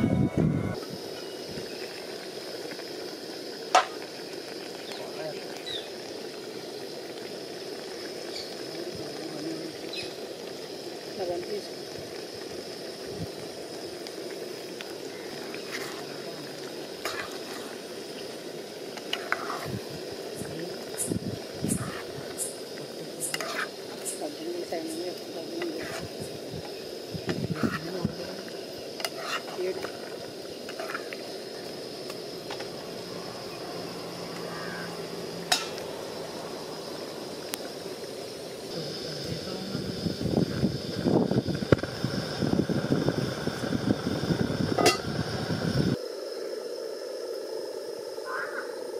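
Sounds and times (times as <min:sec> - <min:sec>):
gas stove hiss: 0:00.0 - 0:48.9
curry sizzling in a pan: 0:00.7 - 0:46.0
spoon scraping through sauce: 0:23.2 - 0:24.2, 0:25.8 - 0:26.1, 0:29.0 - 0:29.6.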